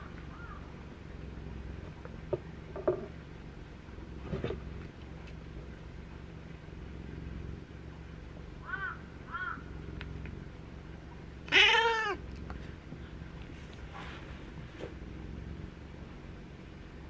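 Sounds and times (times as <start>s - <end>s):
cat meowing: 11.5s - 12.2s.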